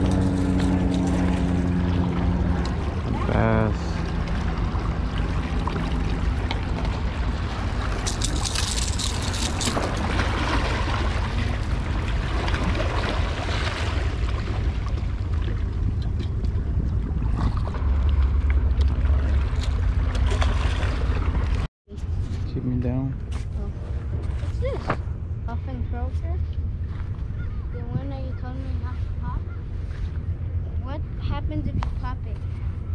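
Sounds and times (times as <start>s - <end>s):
wind buffeting microphone: 23.6s - 32.9s.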